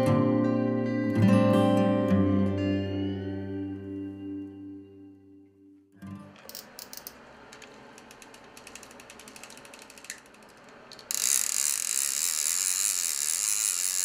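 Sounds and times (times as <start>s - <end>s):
fishing reel ratchet clicking: 6.5s - 7.2s, 8.0s - 14.0s
high-pitched reel whirr: 7.9s - 14.0s.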